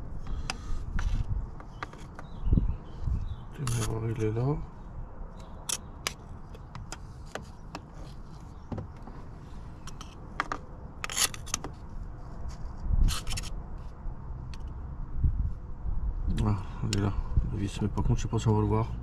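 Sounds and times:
tools scraping: 0.2s - 2.3s, 3.6s - 4.2s, 5.4s - 14.0s
tools and parts clicking: 5.4s - 7.9s, 9.8s - 11.7s.

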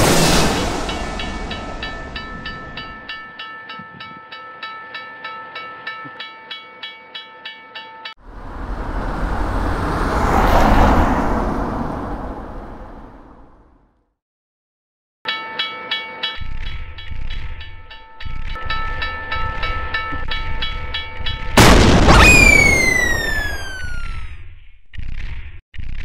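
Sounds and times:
loud rush of noise: 0.0s - 3.0s, 8.3s - 13.6s, 21.7s - 24.0s
train rumble: 0.0s - 3.2s, 8.2s - 13.6s
railroad crossing bell ringing: 0.8s - 8.2s, 15.3s - 21.6s.

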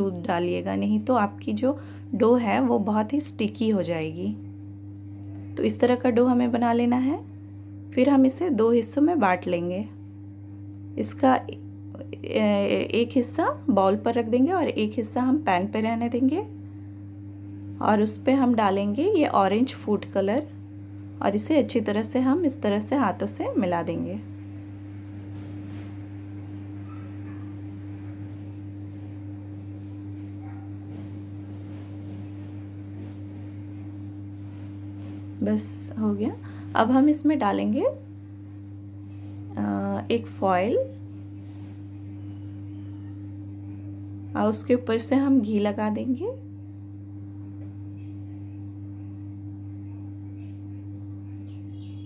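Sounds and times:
low electrical hum: 0.0s - 52.0s
faint bird chirps: 50.4s - 52.0s.

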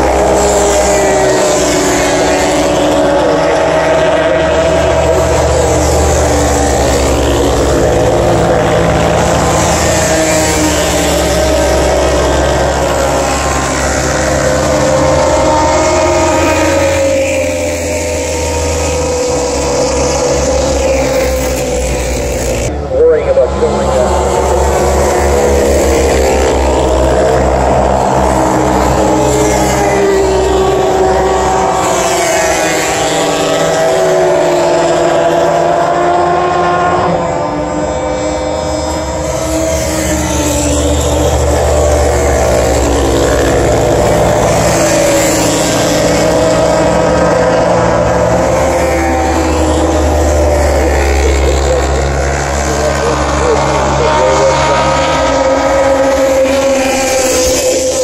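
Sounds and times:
racing motorcycles passing: 0.0s - 58.0s.

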